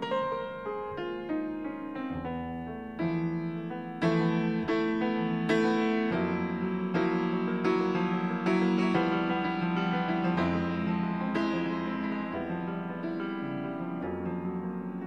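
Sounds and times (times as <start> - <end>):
piano chords: 0.0 - 15.0.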